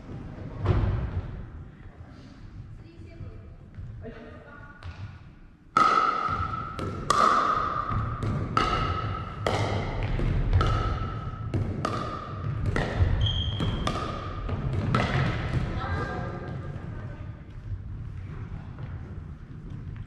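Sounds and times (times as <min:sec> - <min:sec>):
paddles hitting plastic ball: 0:04.8 - 0:16.8.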